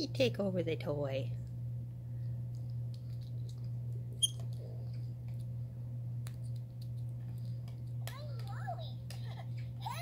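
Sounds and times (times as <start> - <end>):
sharp high squeak: 4.2 - 4.4.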